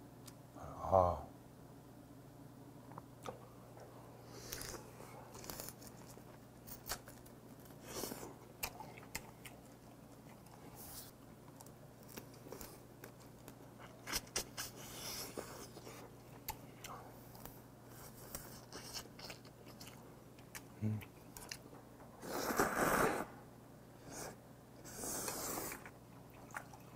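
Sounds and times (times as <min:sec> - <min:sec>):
faint steady hum: 0:00.0 - 0:26.9
man chewing crab: 0:04.3 - 0:23.2, 0:25.0 - 0:26.9.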